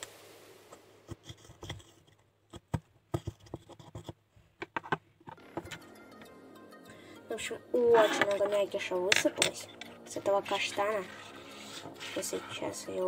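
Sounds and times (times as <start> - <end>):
metal tool scratching chestnut: 1.1 - 2.6, 8.0 - 13.0.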